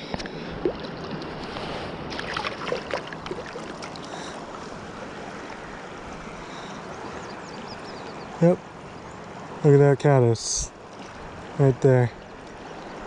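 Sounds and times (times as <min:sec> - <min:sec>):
river current rushing: 0:00.0 - 0:13.0
fish splashing: 0:00.4 - 0:04.5.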